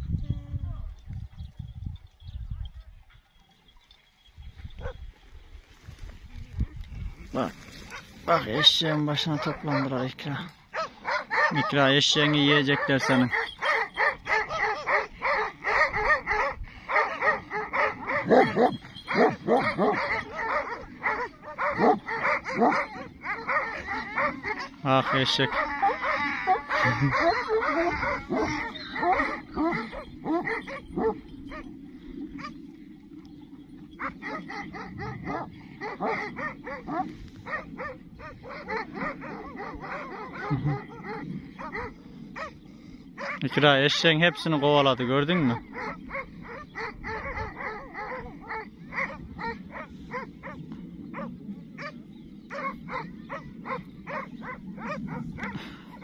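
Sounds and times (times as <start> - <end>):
dogs barking and yelping: 7.8 - 44.6, 45.2 - 56.0
deep dog barks: 7.9 - 31.7, 34.0 - 42.6, 43.2 - 43.6, 45.2 - 56.0.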